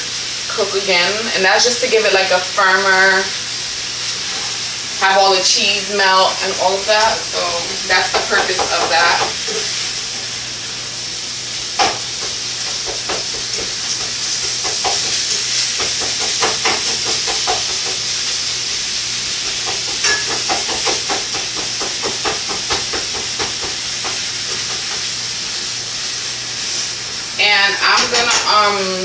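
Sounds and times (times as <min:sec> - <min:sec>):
ground beef sizzling in a pan: 0:00.0 - 0:29.0
utensil scraping a pan: 0:04.1 - 0:06.2.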